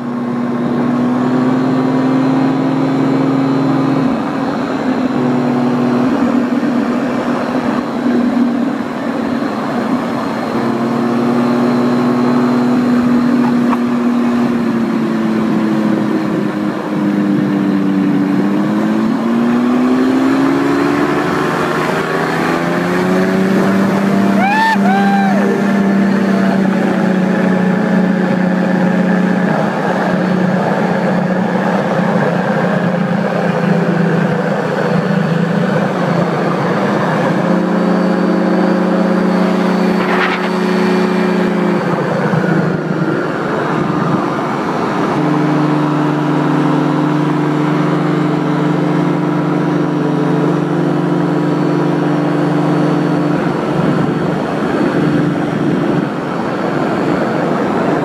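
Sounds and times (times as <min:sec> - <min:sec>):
paramotor engine and propeller: 0:00.0 - 0:58.0.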